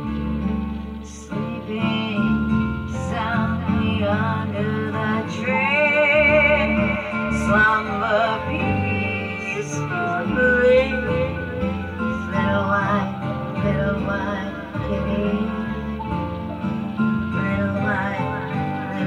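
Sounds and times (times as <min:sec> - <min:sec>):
plucked guitar: 0:00.0 - 0:19.0
melody with vibrato: 0:00.6 - 0:19.0.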